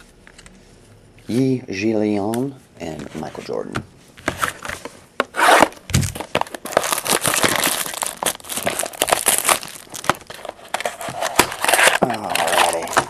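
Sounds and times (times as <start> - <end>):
plastic wrapping crinkling: 5.4 - 13.0.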